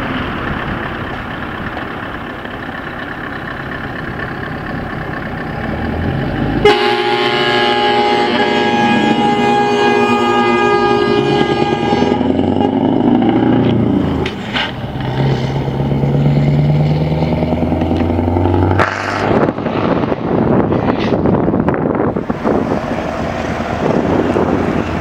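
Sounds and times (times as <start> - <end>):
truck engine pulling away: 0.0 - 25.0
multi-tone air horn blast: 6.6 - 13.2
wind on microphone: 19.0 - 25.0.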